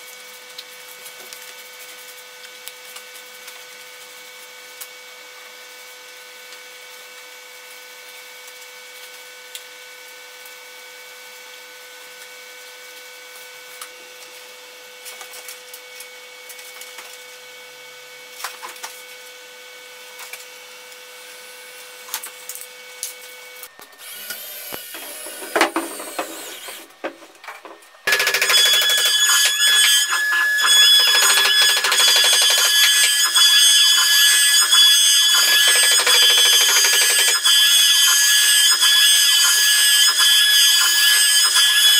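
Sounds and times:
high-pitched machine whine: 20.7 - 41.9
router whine gliding in pitch: 22.8 - 41.9.

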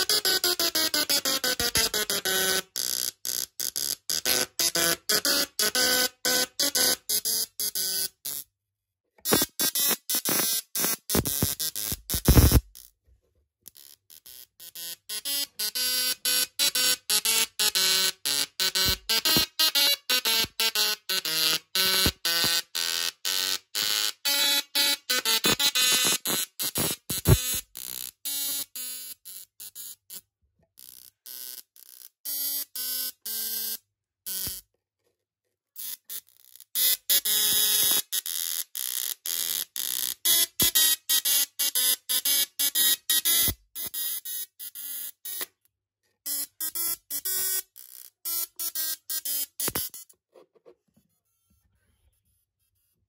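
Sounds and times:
tesla coil buzzing a tune: 0.0 - 8.4, 9.2 - 12.9, 13.7 - 30.2.

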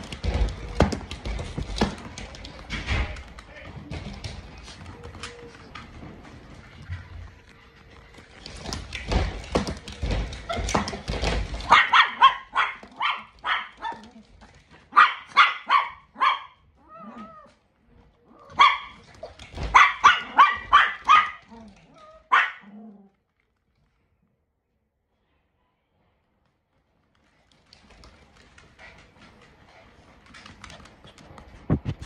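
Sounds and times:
dogs barking: 9.9 - 17.4, 18.4 - 22.9.

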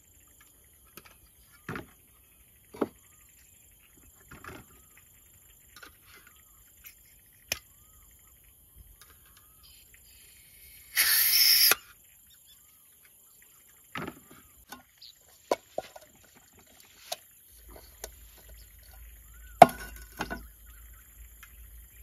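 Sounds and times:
gas hissing burst: 10.1 - 11.8.

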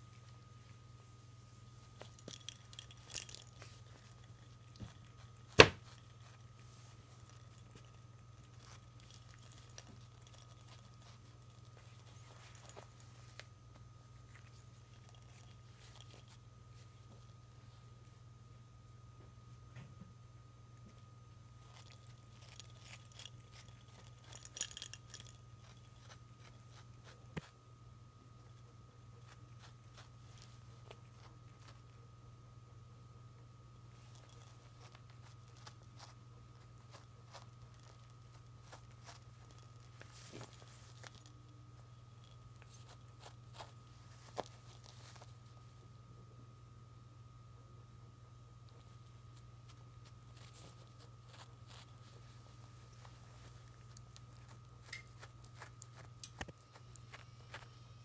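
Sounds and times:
steady low hum: 0.0 - 58.0
light clicks and metallic jingles: 1.8 - 13.5, 14.2 - 17.4, 21.6 - 27.2, 34.0 - 45.4.

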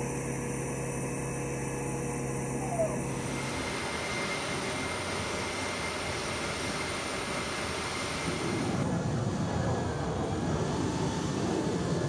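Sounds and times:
jet engines rushing: 2.5 - 12.0.

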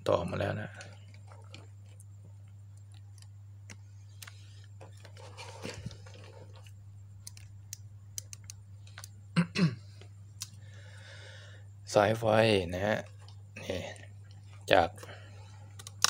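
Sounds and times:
steady low hum: 0.0 - 16.0
faint rustling of wires: 0.2 - 9.3.

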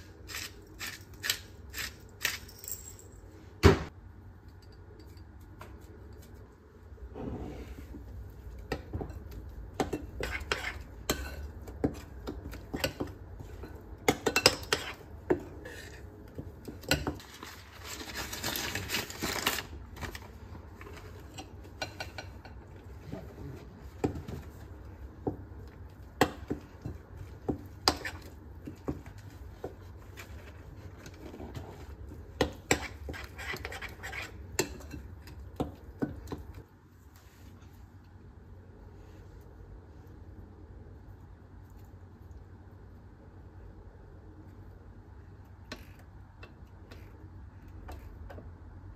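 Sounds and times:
spoon stirring batter in bowl: 7.8 - 17.4, 20.7 - 37.3.

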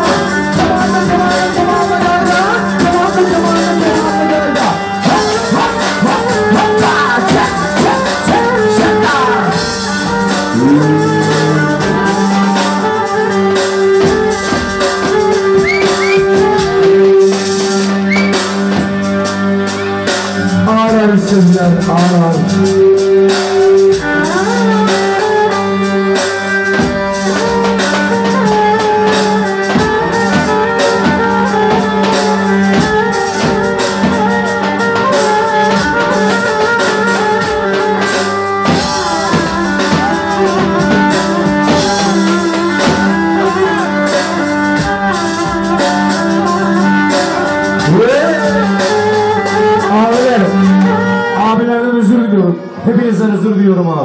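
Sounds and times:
bass drum beating: 5.1 - 19.3, 26.7 - 51.5
wavering melody: 10.4 - 14.0
low drone: 10.5 - 13.2.

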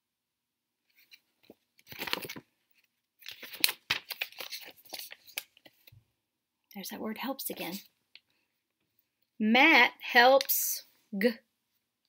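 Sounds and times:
paper pages rustling and crinkling: 0.9 - 6.0.

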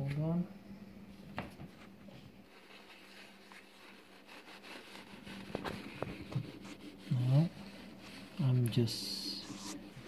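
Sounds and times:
paper towel rubbing glass: 2.4 - 10.0.

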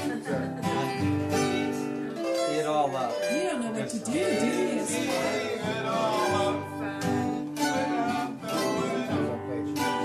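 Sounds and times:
acoustic guitar strumming: 0.0 - 10.0
person singing: 3.3 - 10.0.

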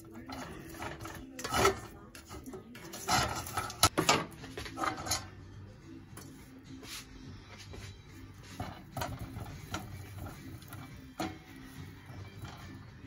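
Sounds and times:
dishes and utensils knocking: 0.0 - 5.3, 8.4 - 13.0.

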